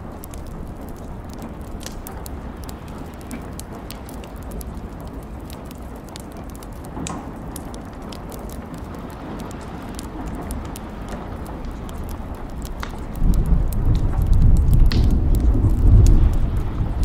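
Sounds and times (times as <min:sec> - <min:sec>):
crackling ticks: 0:00.0 - 0:17.0
steady rushing noise: 0:08.7 - 0:17.0.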